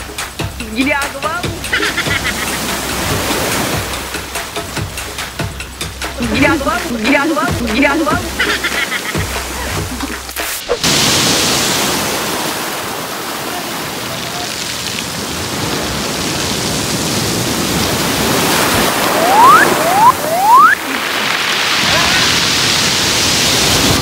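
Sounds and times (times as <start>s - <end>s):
heavy surf breaking: 0.0s - 24.0s
short rising whistles: 18.9s - 20.9s.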